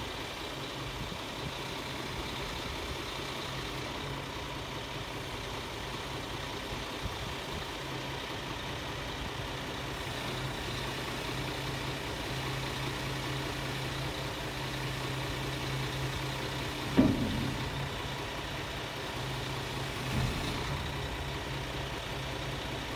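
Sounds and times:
diesel truck engine idling: 0.0 - 22.9
small knock: 16.8 - 18.1
sharp metallic clunk: 16.8 - 18.3.

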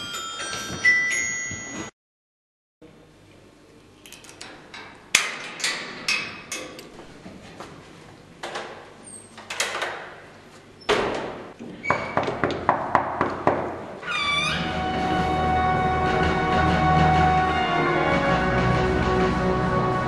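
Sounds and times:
metallic clicks and clanks: 4.0 - 6.9.

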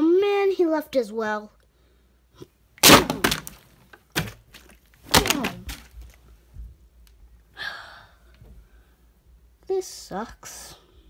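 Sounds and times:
plastic bottles knocking: 3.0 - 6.1.

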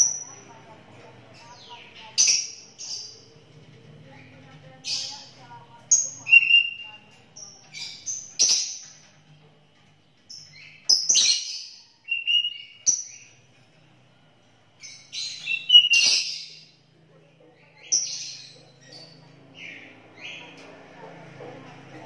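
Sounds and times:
bird singing whistled notes: 6.2 - 7.0, 10.6 - 13.3, 15.1 - 16.6.

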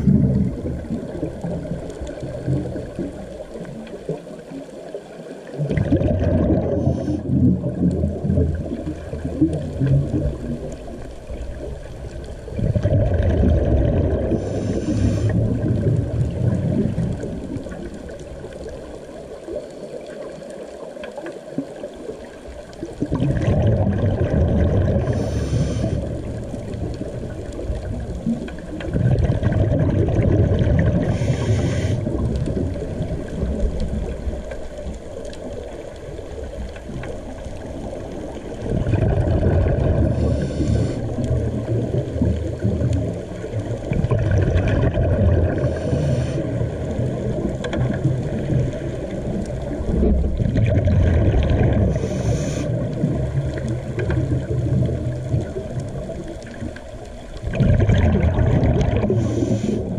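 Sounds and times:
muffled underwater rumble: 0.0 - 59.9
scuba regulator bubbles: 0.0 - 59.9.

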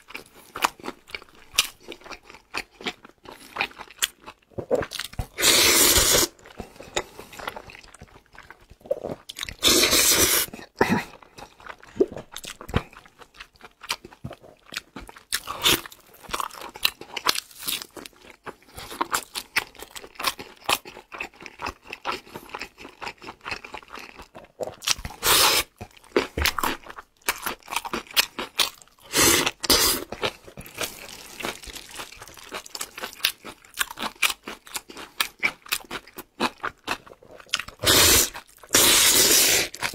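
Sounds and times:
slurping noodles: 5.3 - 6.4, 8.9 - 10.5, 25.2 - 25.7, 29.0 - 32.4, 37.8 - 39.9
chewing: 6.3 - 9.8, 11.0 - 39.9.

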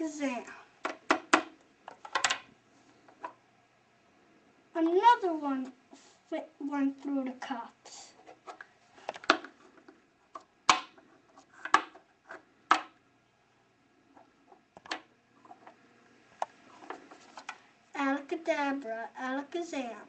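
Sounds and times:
plastic cups knocking on tray: 0.8 - 2.5, 10.4 - 11.0, 11.6 - 12.0, 12.7 - 13.0.

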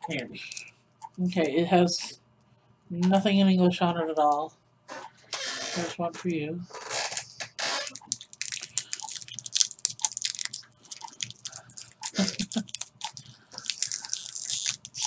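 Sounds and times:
candy wrapper crinkling: 7.9 - 15.0.

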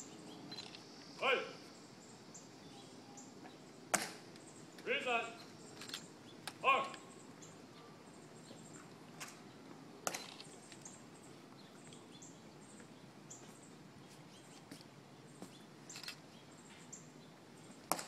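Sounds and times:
faint high bird chirps: 0.0 - 0.8, 1.6 - 3.7.

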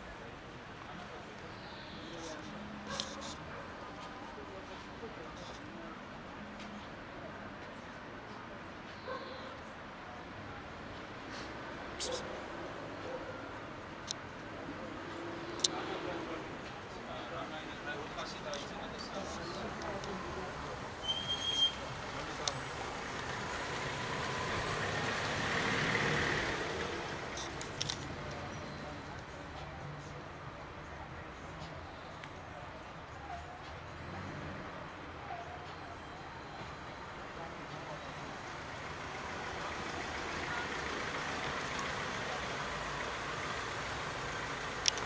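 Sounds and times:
distant street traffic: 0.0 - 45.0
vehicle passing by: 22.2 - 28.4
faint clicks: 44.8 - 45.0.

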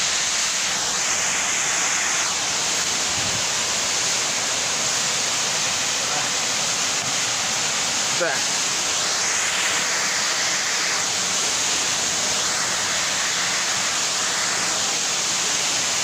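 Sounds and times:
water jet rushing hiss: 0.0 - 16.0.

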